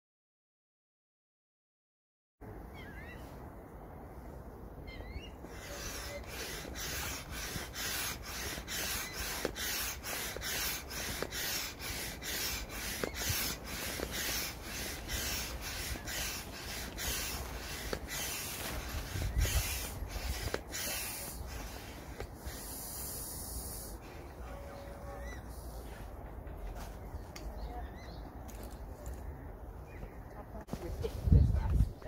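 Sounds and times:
hand air pump hissing strokes: 0:05.4 - 0:26.0.

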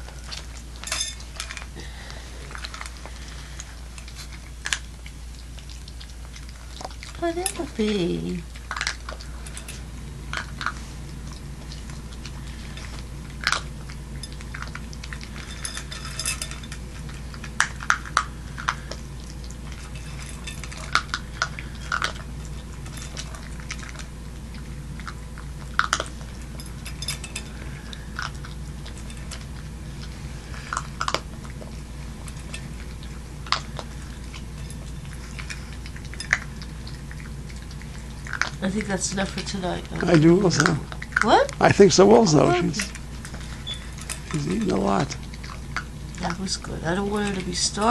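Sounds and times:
dog chewing and crunching: 0:00.0 - 0:47.9
steady low hum: 0:00.0 - 0:47.9
clinks against metal bowl: 0:00.8 - 0:01.6, 0:15.3 - 0:16.8, 0:26.6 - 0:27.6.

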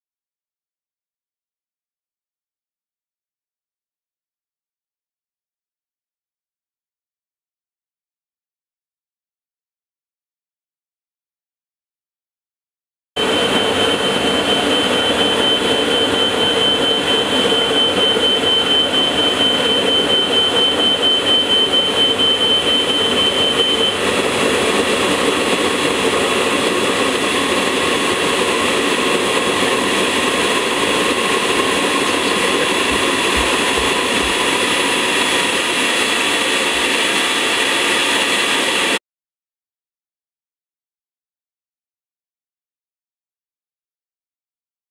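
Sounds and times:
high whine: 0:13.2 - 0:39.0
pulse jet roar: 0:13.2 - 0:39.0.

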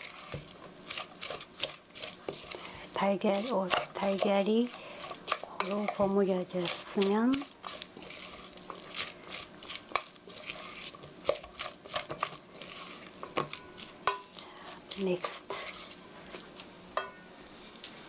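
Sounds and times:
wooden spatula scraping a metal bowl: 0:00.0 - 0:16.6.

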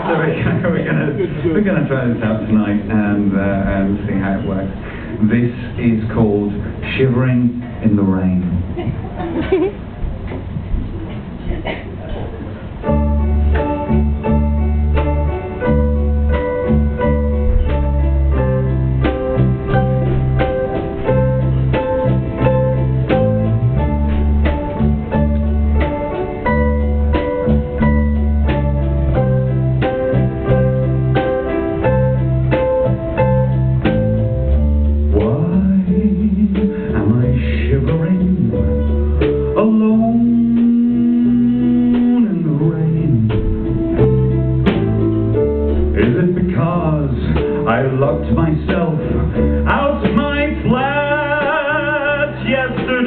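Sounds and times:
steady bass line: 0:00.0 - 0:53.0
plucked guitar: 0:12.1 - 0:53.0.

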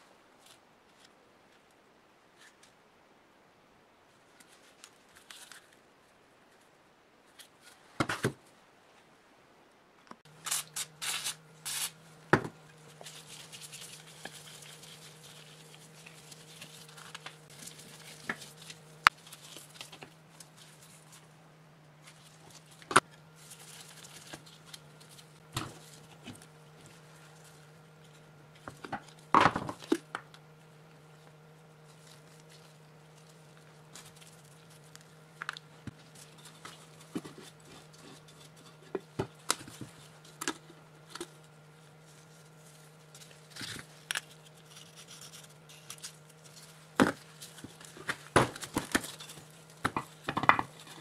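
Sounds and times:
low steady hum: 0:00.0 - 0:51.0
metal tool scraping rust: 0:10.4 - 0:12.0.

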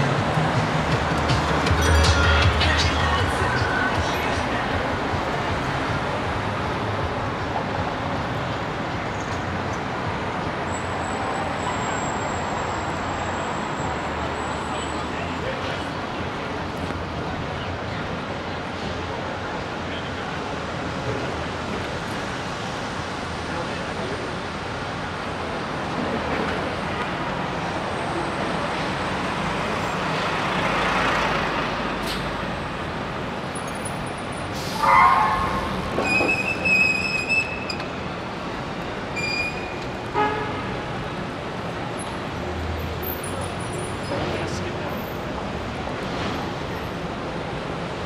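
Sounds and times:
city street traffic: 0:00.0 - 0:48.0
car horn honk: 0:34.8 - 0:36.9, 0:39.2 - 0:40.7.

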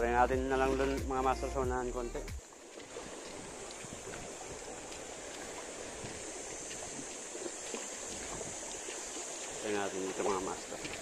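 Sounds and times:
light wind: 0:00.0 - 0:11.0
small waves washing on rocks: 0:02.4 - 0:11.0.

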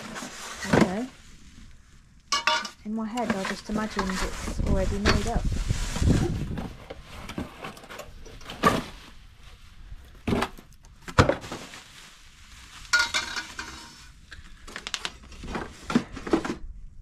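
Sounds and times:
cardboard rustling and scraping: 0:00.0 - 0:01.4, 0:03.2 - 0:16.8.

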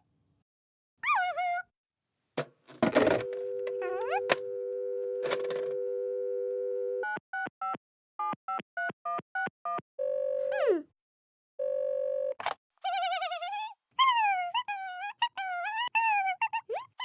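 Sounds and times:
telephone dial tone: 0:03.0 - 0:07.5, 0:10.0 - 0:10.5, 0:11.6 - 0:12.4.

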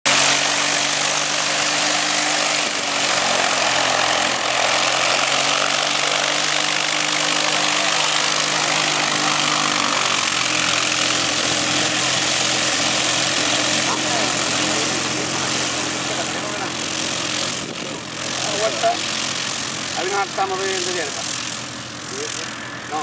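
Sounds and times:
light aircraft engine running: 0:00.1 - 0:23.0.

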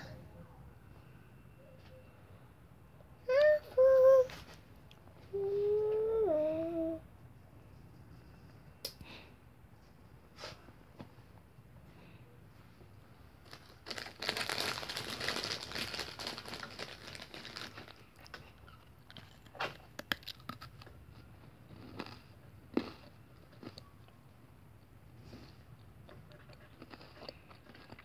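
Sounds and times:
crinkly material being crumpled: 0:13.4 - 0:20.2.

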